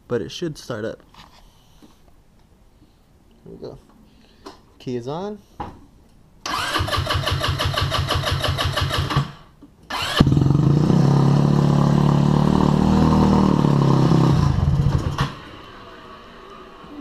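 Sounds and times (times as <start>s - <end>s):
electric starter cranking engine: 6.4s - 15.8s.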